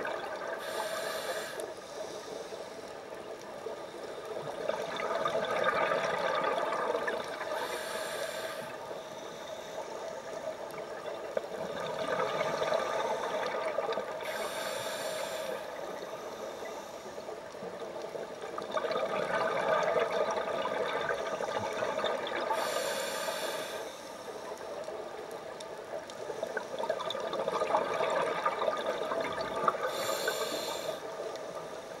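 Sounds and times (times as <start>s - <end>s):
hissing regulator inhalations: 0.6s - 3.2s, 7.4s - 10.4s, 14.2s - 17.4s, 22.5s - 24.6s, 29.8s - 31.9s.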